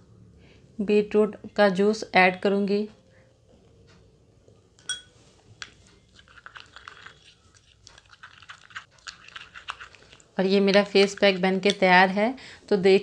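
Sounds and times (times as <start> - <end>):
spoon clinking against glass: 4.8 - 5.2
spoon scraping sticky paste: 5.2 - 12.0.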